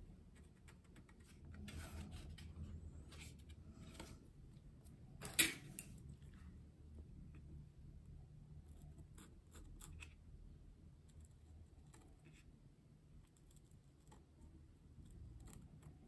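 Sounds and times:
pen scratching and clicking: 13.2s - 16.0s.

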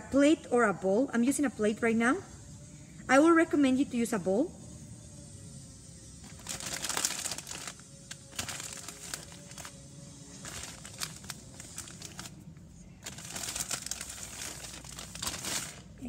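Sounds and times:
plastic bag crinkling: 6.2s - 9.8s, 10.4s - 12.4s, 13.0s - 16.0s.

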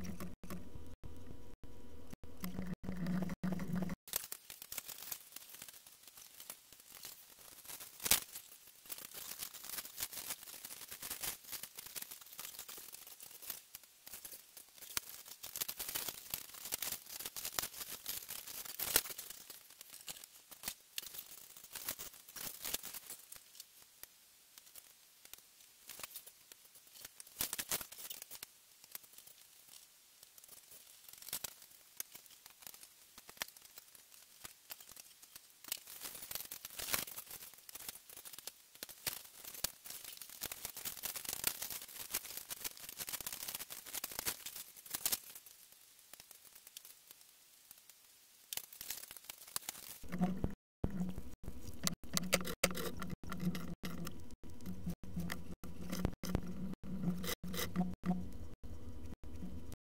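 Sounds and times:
plastic parts clicking and rattling: 48.5s - 58.5s.

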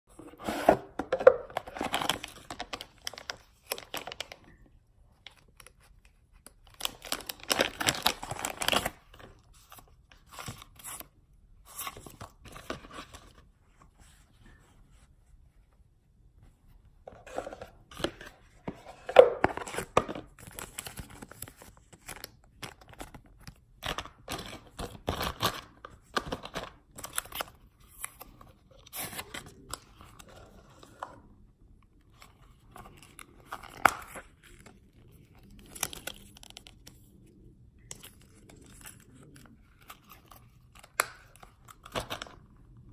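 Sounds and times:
packaging rustling and tearing: 0.4s - 4.4s, 6.4s - 11.1s.

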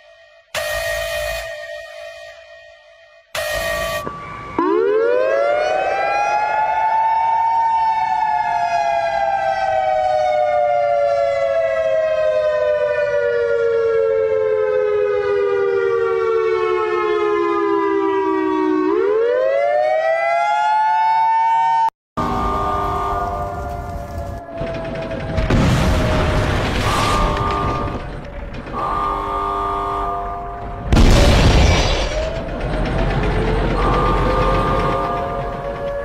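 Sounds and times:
siren wailing: 0.0s - 36.0s.

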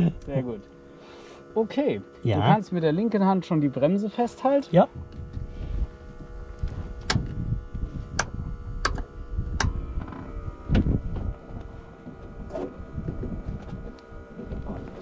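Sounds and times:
faint electrical hum: 0.0s - 15.0s
wind buffeting microphone: 4.8s - 15.0s.

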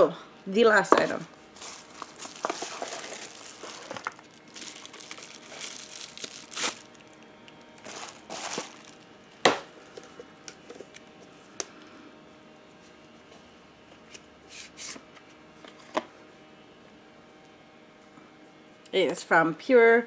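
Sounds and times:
plastic wrapping crinkling: 1.6s - 9.2s.

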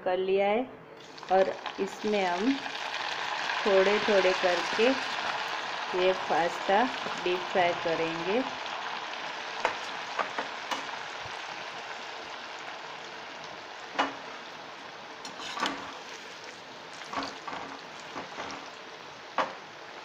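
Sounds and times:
food sizzling in hot oil: 1.0s - 20.0s.

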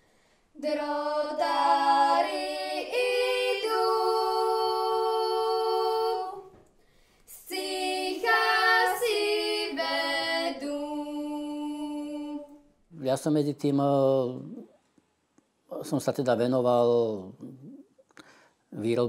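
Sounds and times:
person singing unaccompanied: 0.6s - 6.6s.

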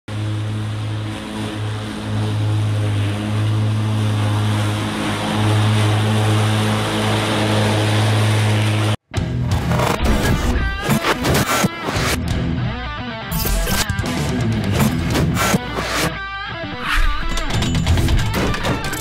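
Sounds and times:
electric lawn tractor mowing: 0.1s - 9.0s, 14.8s - 16.2s.

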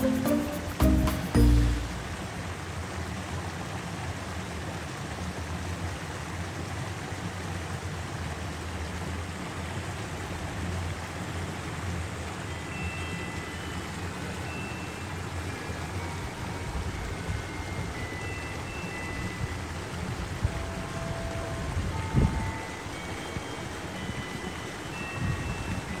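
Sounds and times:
short burst of music: 0.0s - 2.2s
river water rushing: 0.0s - 26.0s.

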